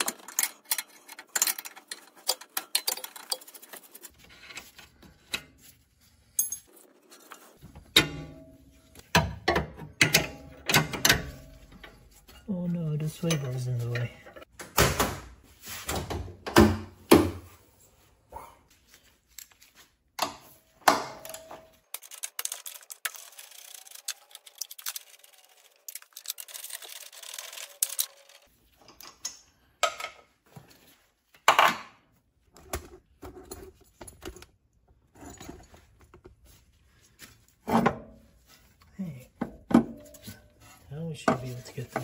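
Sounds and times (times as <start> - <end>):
metal tools clinking and knocking: 0.0 - 14.5, 39.3 - 42.0.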